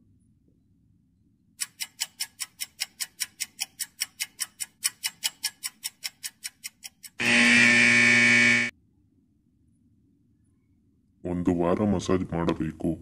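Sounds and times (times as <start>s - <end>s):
clock ticking: 1.6s - 7.4s.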